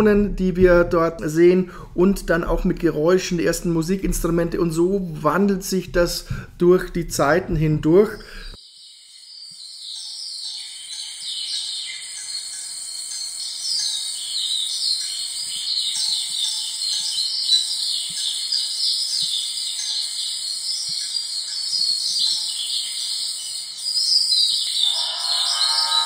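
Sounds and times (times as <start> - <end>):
birds chirping: 2.5 - 26.0
crickets chirping: 8.1 - 26.0.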